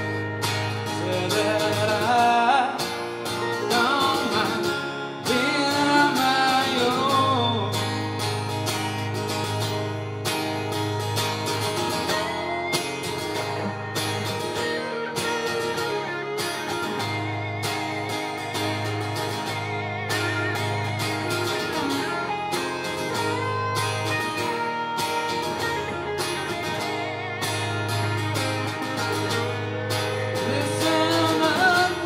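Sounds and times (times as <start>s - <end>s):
person singing: 0.0s - 8.4s, 29.0s - 32.0s
acoustic guitar strumming: 0.0s - 32.0s
electric guitar lead lines: 0.0s - 32.0s.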